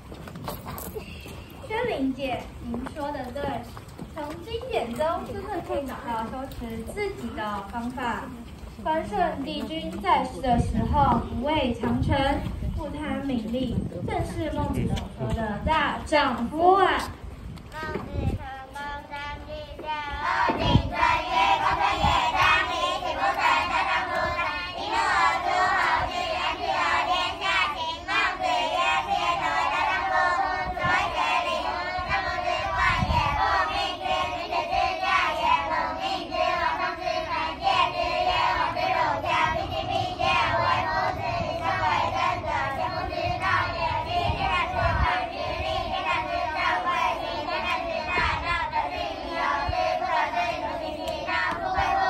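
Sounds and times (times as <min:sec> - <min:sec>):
children singing in unison: 0:18.7 - 0:52.0.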